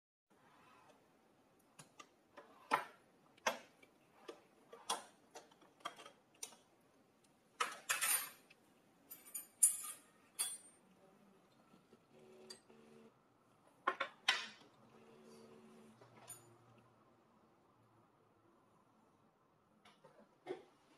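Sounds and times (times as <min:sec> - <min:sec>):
tableware clinking: 0:07.6 - 0:08.4, 0:09.1 - 0:10.8.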